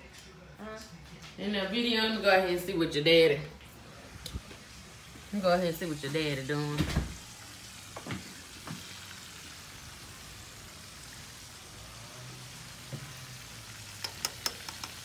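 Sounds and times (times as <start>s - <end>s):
fish sizzling in hot oil: 4.8s - 15.0s.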